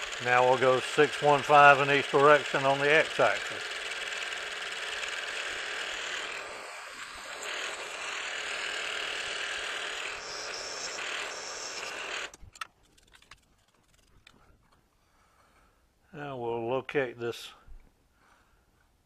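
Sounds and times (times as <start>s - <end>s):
milling machine drilling metal: 0.0s - 12.4s.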